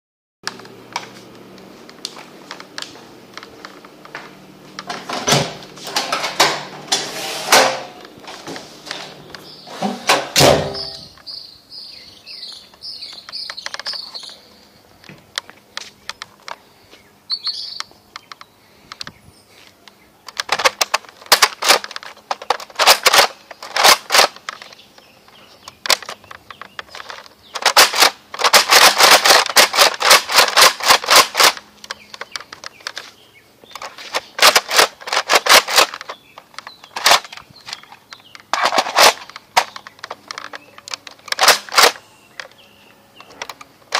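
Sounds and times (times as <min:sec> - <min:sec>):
toy blaster firing sharp clicks: 0:20.3 - 0:24.8, 0:25.8 - 0:31.6, 0:33.8 - 0:37.9, 0:38.5 - 0:42.5.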